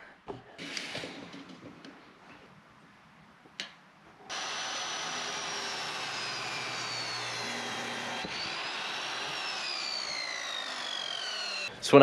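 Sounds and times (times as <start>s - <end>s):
miter saw cutting wood: 4.3s - 11.7s.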